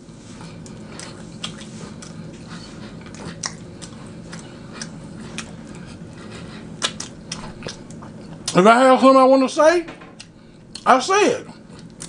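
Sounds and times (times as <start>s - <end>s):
faint low hum: 0.0s - 12.0s
person chewing: 0.2s - 8.6s, 10.2s - 10.9s, 11.5s - 12.0s.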